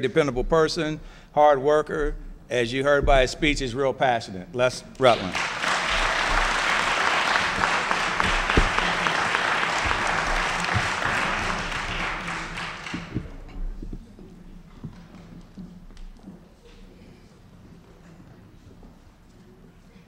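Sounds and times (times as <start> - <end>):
audience applauding: 5.1 - 13.4.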